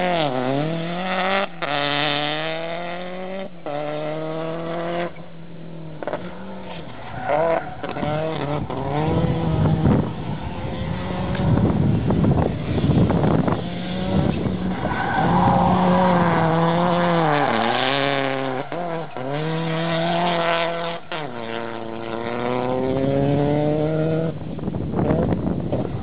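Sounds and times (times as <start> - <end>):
rally car engine revving: 0.0 - 26.0
tyre and grit noise: 5.9 - 26.0.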